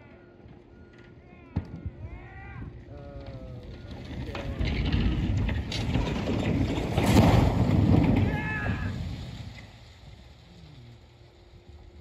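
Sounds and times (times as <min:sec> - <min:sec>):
rumbling crash of buckling metal: 0:04.0 - 0:09.6.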